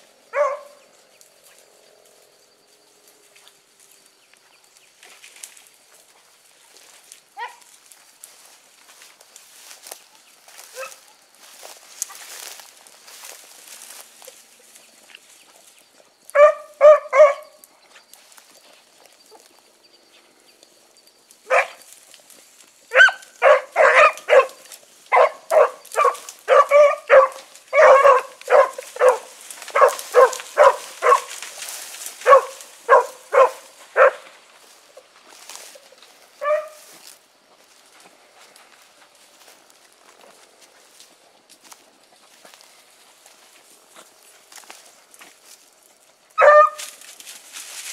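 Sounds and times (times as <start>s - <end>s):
hounds barking: 0.3s - 0.9s, 7.4s - 7.7s, 10.6s - 11.2s, 16.3s - 17.6s, 21.4s - 21.9s, 22.9s - 34.4s, 36.4s - 36.9s, 46.4s - 47.0s.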